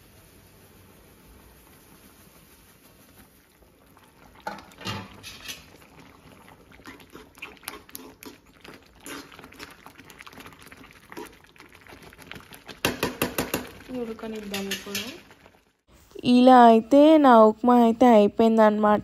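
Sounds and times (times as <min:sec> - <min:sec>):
boiling water hiss: 0:00.0 - 0:17.6
spoon scraping a metal pan: 0:04.8 - 0:05.7, 0:14.5 - 0:15.2.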